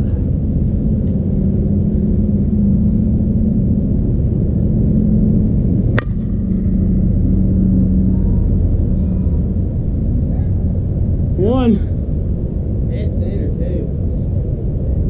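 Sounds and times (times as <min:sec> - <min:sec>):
low hum: 0:00.0 - 0:15.0
bat striking ball: 0:05.9 - 0:06.7.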